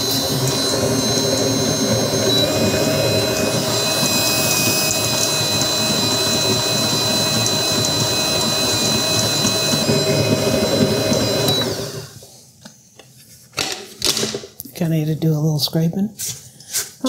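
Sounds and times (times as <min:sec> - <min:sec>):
stand mixer motor whining: 0:00.0 - 0:12.2.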